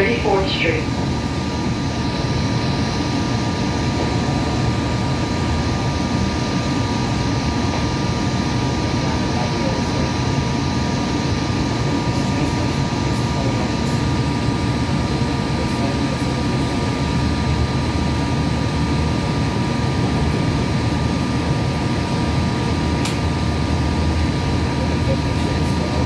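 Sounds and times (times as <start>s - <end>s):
high electrical hum: 0.0s - 26.0s
train wheels rumbling on track: 3.9s - 5.6s.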